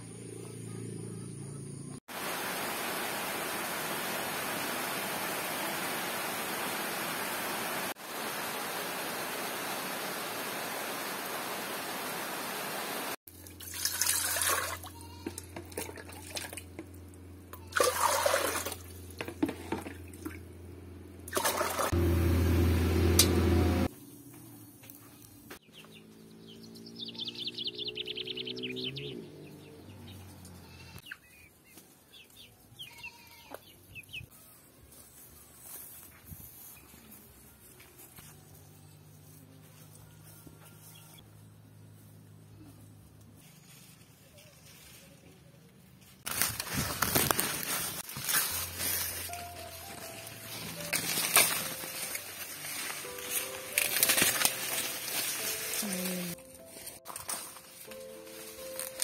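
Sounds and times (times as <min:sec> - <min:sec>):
rain hissing: 0:02.1 - 0:13.2
water pouring into metal pot: 0:13.4 - 0:14.8
loud low hum: 0:22.0 - 0:23.9.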